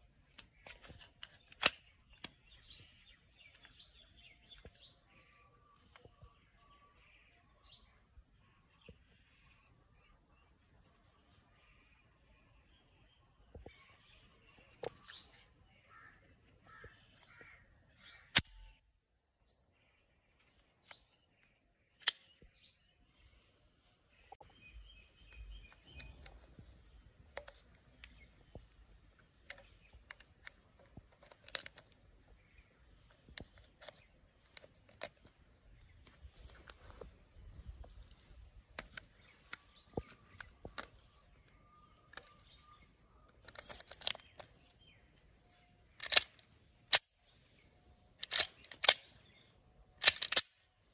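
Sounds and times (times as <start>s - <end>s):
birds chirping faintly: 0.0s - 50.9s
pistol metallic clicks and snaps: 0.3s - 2.8s, 18.2s - 18.7s, 22.0s - 22.5s, 46.0s - 47.2s, 48.2s - 49.1s, 50.0s - 50.7s.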